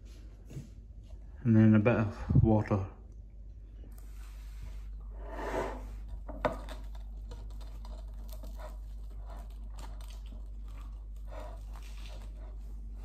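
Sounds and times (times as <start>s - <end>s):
steady low hum: 0.0s - 13.0s
bread being torn by hand: 6.4s - 12.6s.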